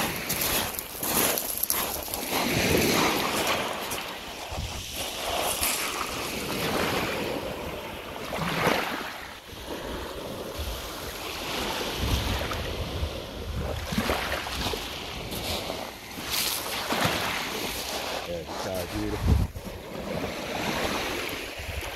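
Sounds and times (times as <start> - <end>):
water sloshing over shingle: 0.0 - 4.2
wind on microphone: 0.0 - 16.6, 18.9 - 21.9.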